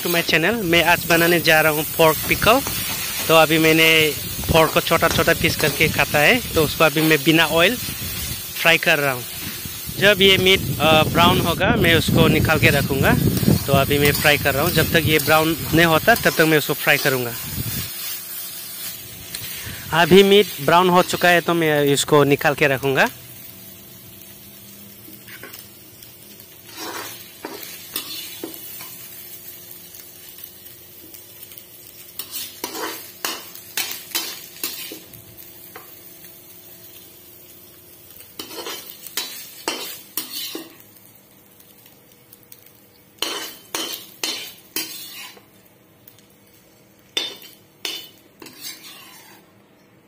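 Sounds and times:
meat sizzling: 0.0 - 49.5
metal spatula scraping pan: 44.3 - 45.5, 47.2 - 49.4.

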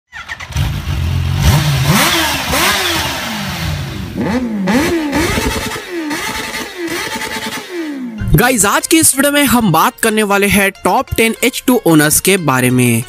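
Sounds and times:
motorcycle engine revving: 0.1 - 8.5.

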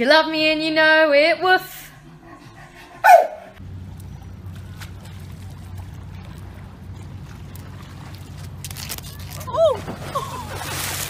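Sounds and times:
steady low rumble: 0.0 - 11.0
water splashing against seawall: 4.0 - 11.0.

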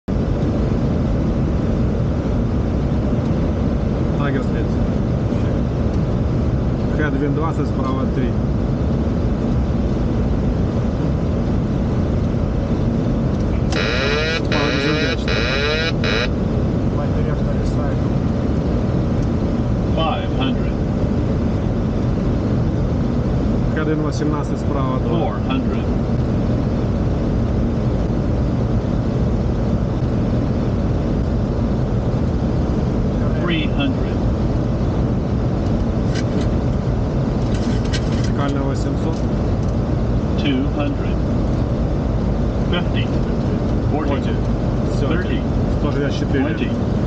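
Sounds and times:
airflow and engine rumble: 0.0 - 47.0
pulsing electronic beeps: 13.6 - 16.3.

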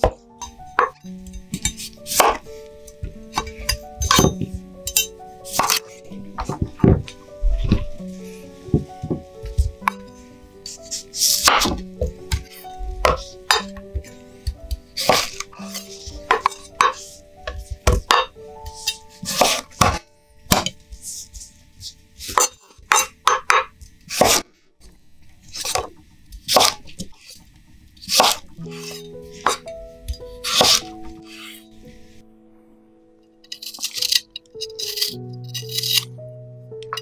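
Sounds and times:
soft background music: 0.0 - 37.0
knife cutting carrot on board: 1.6 - 2.4, 5.5 - 7.0, 10.8 - 13.3, 15.0 - 20.8, 28.0 - 29.6, 30.2 - 31.4.

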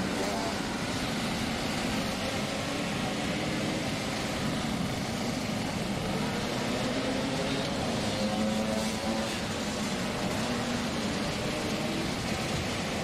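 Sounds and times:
outdoor noise: 0.0 - 13.0.

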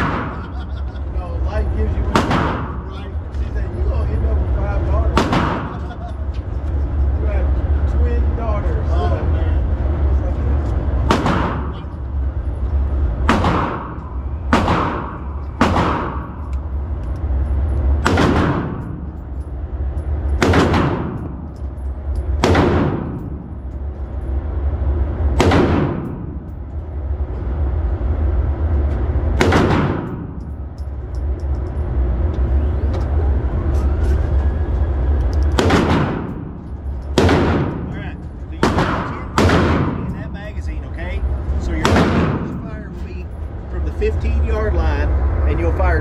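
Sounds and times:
steady low rumble: 0.0 - 46.0
handgun shots: 2.1 - 2.8, 5.2 - 5.8, 11.1 - 11.9, 13.3 - 16.5, 18.0 - 19.0, 20.4 - 21.4, 22.4 - 23.3, 29.4 - 30.2, 35.5 - 36.5, 38.6 - 40.1, 41.8 - 42.6.

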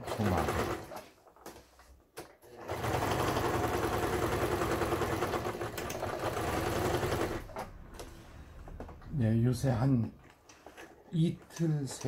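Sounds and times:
sewing machine running: 0.0 - 1.0, 2.5 - 8.0.

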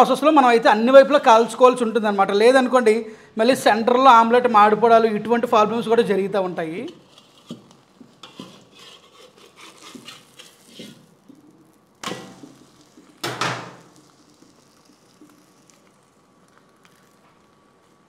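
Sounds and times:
omelette sizzling: 5.9 - 18.0
metal spatula scraping wok: 6.7 - 12.8.

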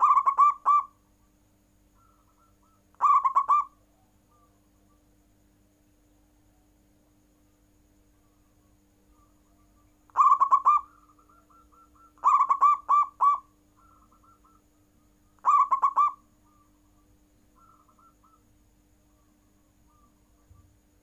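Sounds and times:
fainter higher dove coos: 0.0 - 0.9, 2.0 - 4.6, 9.5 - 14.6, 15.4 - 16.2
dove cooing: 0.0 - 1.0, 2.0 - 4.6, 9.2 - 14.7, 15.4 - 16.8, 17.6 - 18.5, 19.1 - 20.8.

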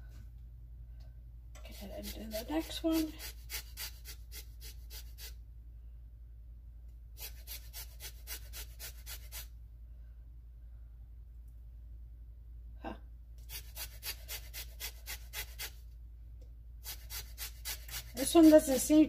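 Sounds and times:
lemon scraping on a zester: 1.6 - 5.4, 7.2 - 9.5, 13.4 - 15.8, 16.8 - 19.0.

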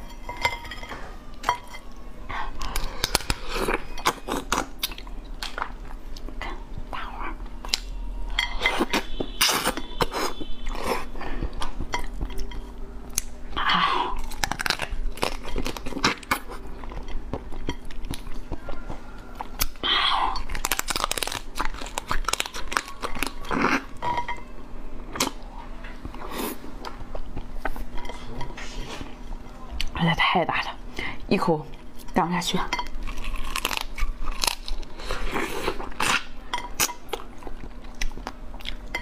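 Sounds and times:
crab shell crunching: 14.2 - 16.7, 20.4 - 24.0, 33.0 - 35.0.

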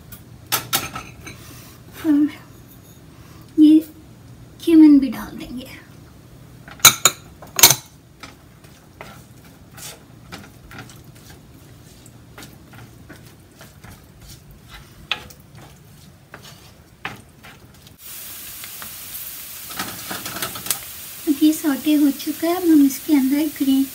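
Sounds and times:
onions sizzling in oil: 0.0 - 23.9
wooden spoon scraping a pan: 6.7 - 18.0, 19.7 - 20.8.

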